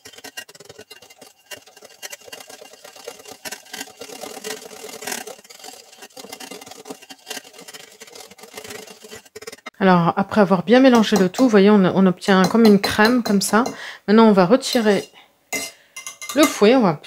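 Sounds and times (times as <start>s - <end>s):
whisk scraping plastic bowl: 0.0s - 9.8s, 10.7s - 11.7s, 12.3s - 13.8s, 14.6s - 15.1s.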